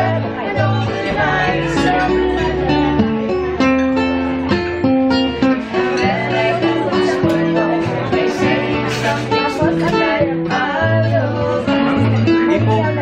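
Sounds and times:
man and woman singing: 0:00.0 - 0:03.2, 0:05.4 - 0:13.0
acoustic guitar strumming: 0:00.0 - 0:13.0.

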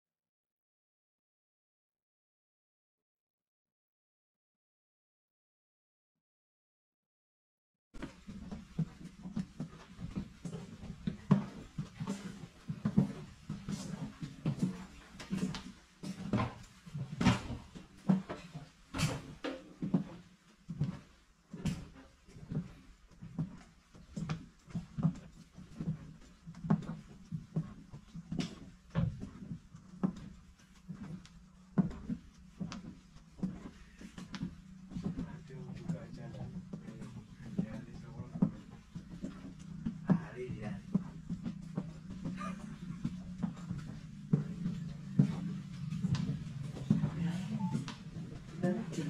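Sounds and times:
footsteps on train floor: 0:08.0 - 0:49.0
steady low hum: 0:23.7 - 0:49.0.

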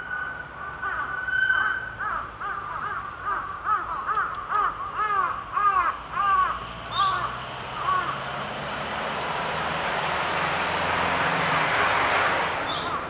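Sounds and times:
bird call notes: 0:00.0 - 0:08.2, 0:12.4 - 0:13.0.

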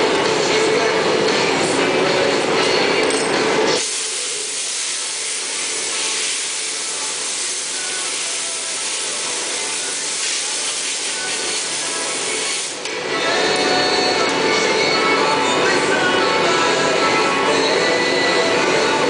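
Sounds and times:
steady high hiss: 0:03.8 - 0:12.9.

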